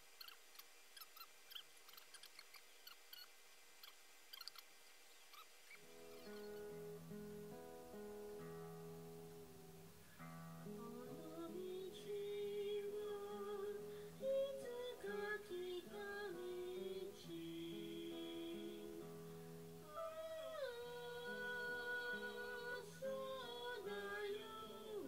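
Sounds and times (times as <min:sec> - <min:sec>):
acoustic guitar: 0:05.8 - 0:25.0
person singing long notes: 0:10.6 - 0:25.0.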